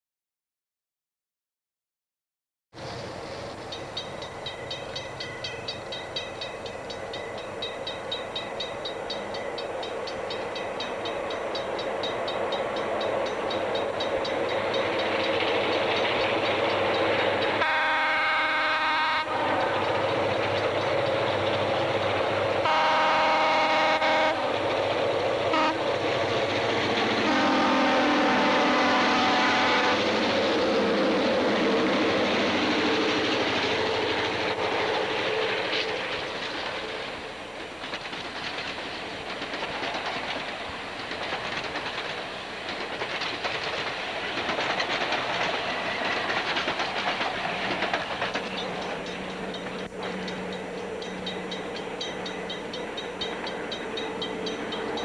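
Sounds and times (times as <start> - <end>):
train wheels clattering over rails: 2.8 - 55.0
locomotive horn blasts: 17.6 - 19.9, 22.6 - 24.6, 25.5 - 25.9, 27.2 - 30.1.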